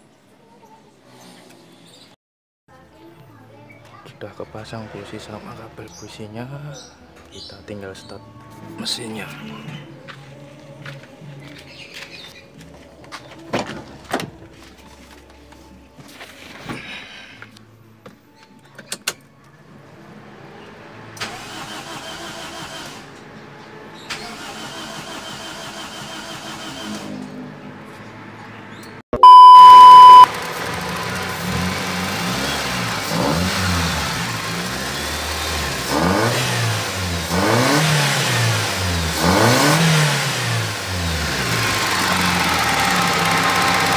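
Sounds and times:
steady beep: 0:29.2 - 0:30.3
car engine revving: 0:29.3 - 0:43.9.

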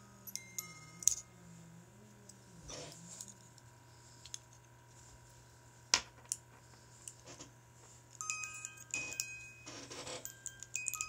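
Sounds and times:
music box tinkling notes: 0:00.0 - 0:01.4, 0:08.2 - 0:11.0.

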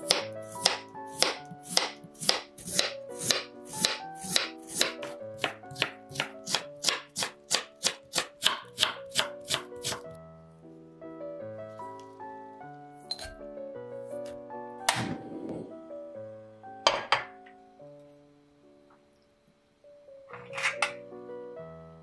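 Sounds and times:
knife chopping on wooden board: 0:00.0 - 0:10.0
background music: 0:00.0 - 0:22.0.

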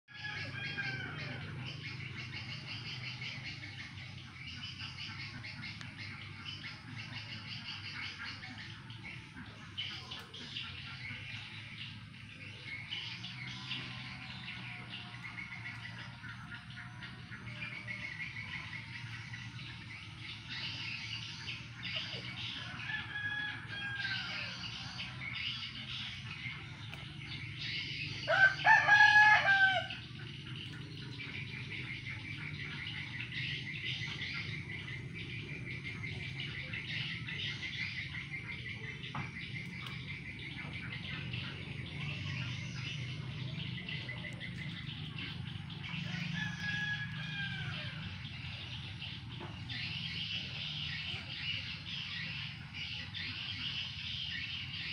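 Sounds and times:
rooster crowing: 0:00.1 - 0:01.6, 0:22.6 - 0:25.2, 0:28.3 - 0:30.1, 0:46.0 - 0:48.3
distant rooster crows: 0:00.1 - 0:01.9, 0:22.2 - 0:26.0, 0:28.1 - 0:30.2, 0:45.6 - 0:48.7.

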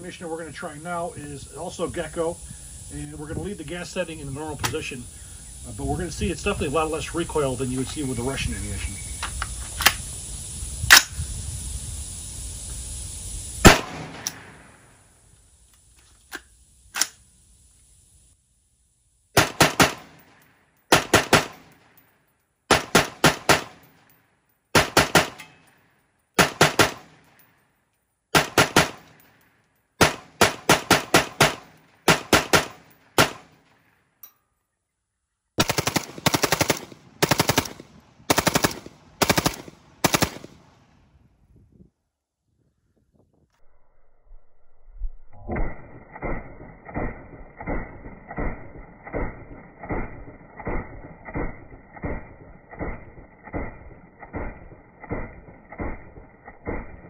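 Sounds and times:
steady hiss: 0:00.0 - 0:22.3
rifle fire: 0:13.6 - 0:15.0, 0:19.4 - 0:22.0, 0:22.7 - 0:25.7, 0:26.4 - 0:27.5, 0:28.3 - 0:29.3, 0:30.0 - 0:33.9, 0:35.6 - 0:40.9, 0:45.6 - 0:57.0.

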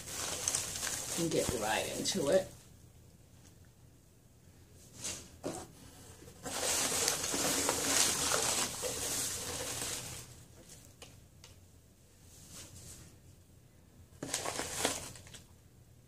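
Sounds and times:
paper shred filler rustling: 0:00.0 - 0:02.4, 0:04.9 - 0:10.9, 0:14.2 - 0:15.4.

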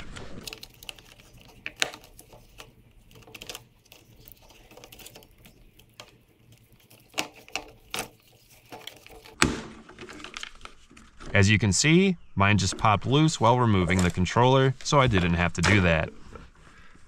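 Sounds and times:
plastic clicks and rattles: 0:00.0 - 0:11.3.

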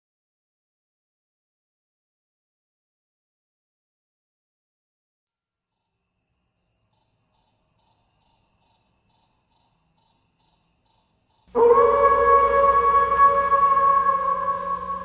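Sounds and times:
cricket chirping: 0:05.3 - 0:15.0
loud music: 0:11.6 - 0:15.0.

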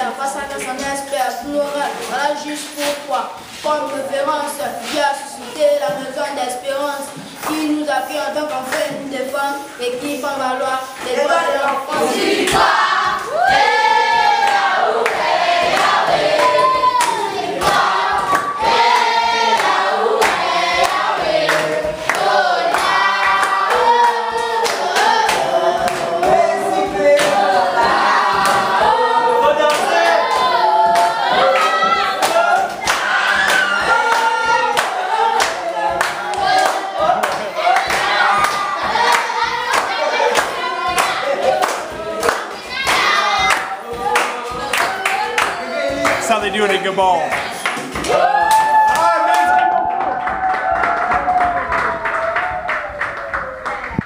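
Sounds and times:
group singing together: 0:00.0 - 0:52.1
hand claps: 0:07.1 - 0:07.8, 0:14.4 - 0:28.8, 0:29.6 - 0:54.0.

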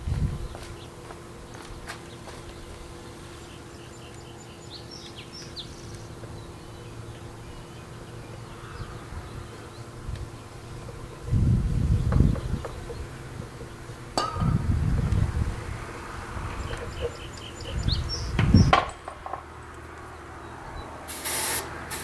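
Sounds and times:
steady low hum: 0:00.0 - 0:22.0
bird chirps: 0:03.3 - 0:11.3, 0:16.6 - 0:18.8.

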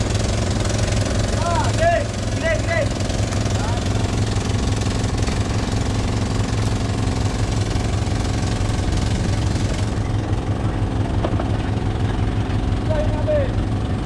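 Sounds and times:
boat engine humming: 0:00.0 - 0:14.0.

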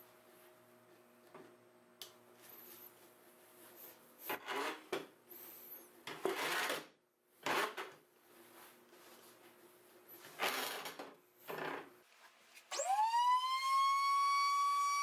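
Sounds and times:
faint steady hum: 0:00.0 - 0:06.2.

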